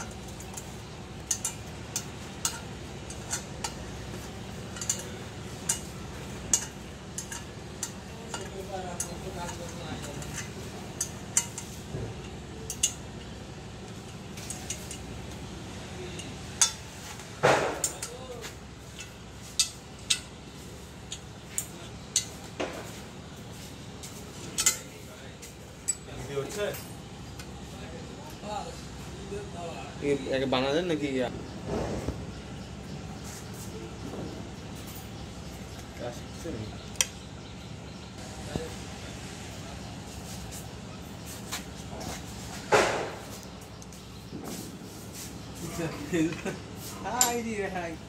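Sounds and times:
spanner clinking on metal bolts: 0.0 - 15.4, 16.1 - 18.3, 18.9 - 20.4, 24.4 - 25.0, 25.8 - 27.6
steady low hum: 0.0 - 48.0.

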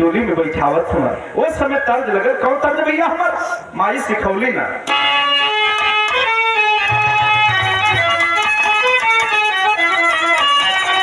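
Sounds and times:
folk ensemble instrumental music: 4.8 - 11.0.

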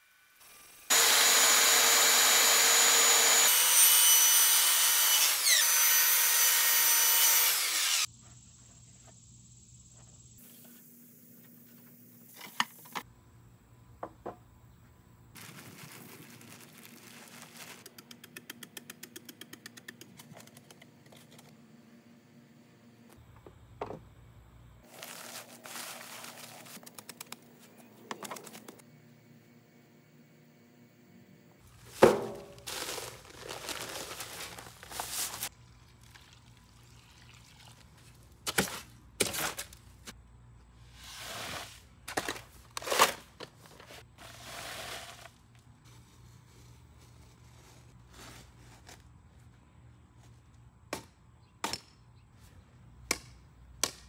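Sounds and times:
power tool running: 0.4 - 8.1.

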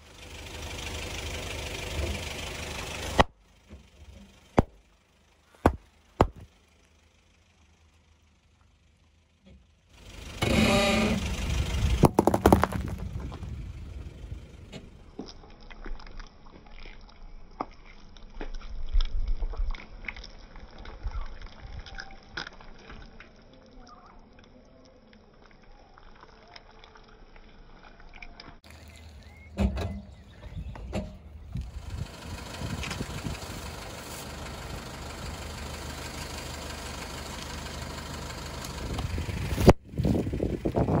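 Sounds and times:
hard candy cracking under tyre: 5.5 - 7.0, 12.0 - 13.7, 15.1 - 23.8
jelly squelching: 15.2 - 29.6.

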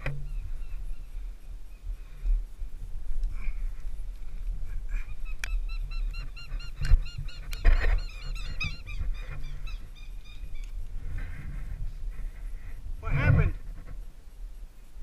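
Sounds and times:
bird honking calls: 5.3 - 10.7.

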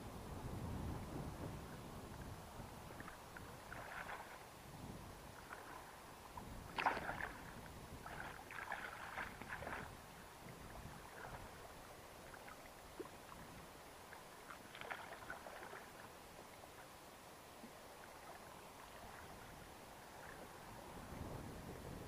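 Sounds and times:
fish thrashing and splashing water: 6.7 - 7.4, 8.0 - 9.9.

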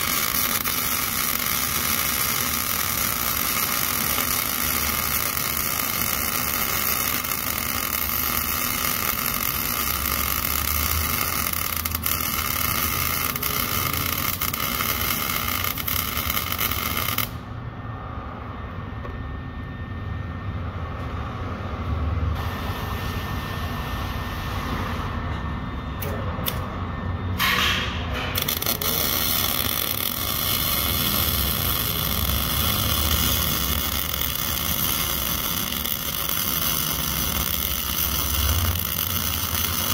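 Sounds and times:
welding arc crackling: 0.0 - 17.5, 27.4 - 39.9.

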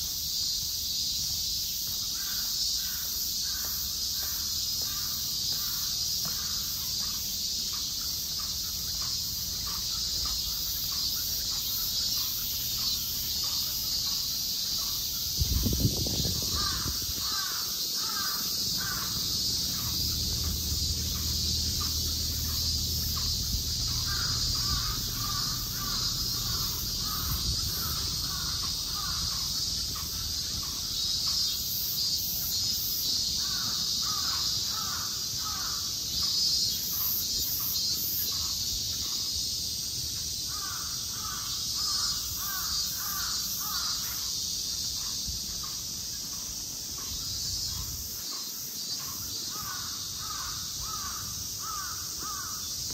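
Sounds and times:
insects droning: 0.0 - 52.9
crow cawing: 2.2 - 6.8, 16.0 - 30.8, 33.4 - 35.9, 40.5 - 44.3, 49.5 - 52.7.

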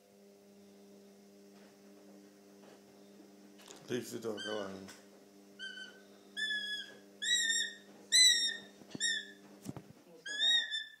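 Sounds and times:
hawk whistled whining calls: 5.6 - 9.4, 10.3 - 11.0.

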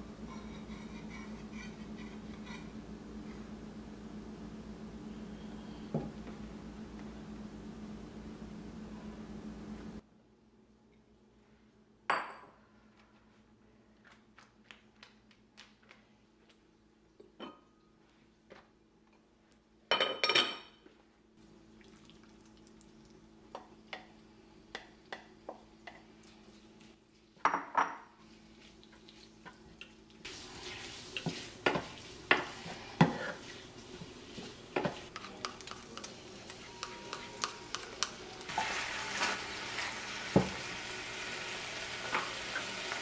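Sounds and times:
dishes and utensils clattering: 19.9 - 20.8
meat sizzling in a frying pan: 30.2 - 32.8, 38.4 - 43.0
wooden spatula scraping a pan: 30.3 - 35.1.

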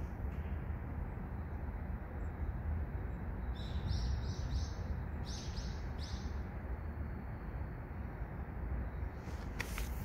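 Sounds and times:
low outdoor rumble: 0.0 - 10.0
small bird chirping: 2.2 - 6.5.

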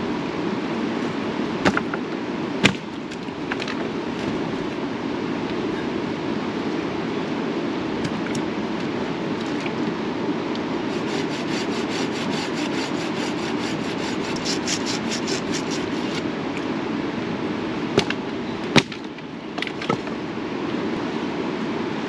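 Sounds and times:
river rushing: 0.0 - 22.0
sharp knocks: 1.6 - 2.0
rhythmic scraping strokes: 10.9 - 16.2.

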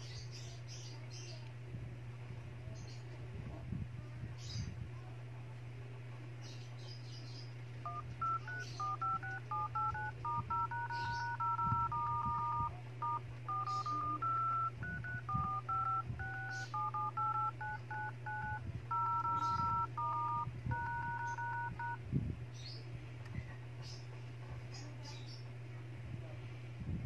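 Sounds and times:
steady low hum: 0.0 - 27.0
touch-tone keypad beeps: 7.9 - 22.0.

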